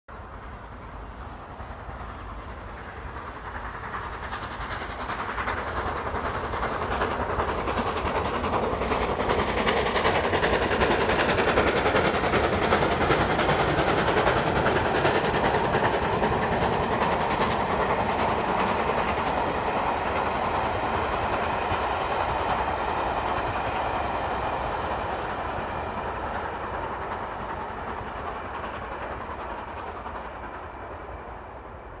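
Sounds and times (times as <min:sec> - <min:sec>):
rolling train coaches: 0:00.1 - 0:32.0
steam locomotive exhaust beats: 0:00.1 - 0:32.0.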